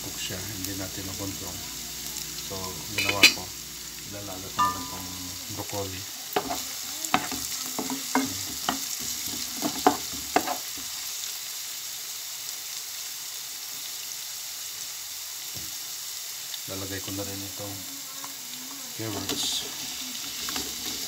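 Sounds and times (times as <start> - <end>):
onions sizzling in frying pan: 0.0 - 21.0
wooden spatula knocking pan: 4.6 - 5.2, 6.4 - 10.6.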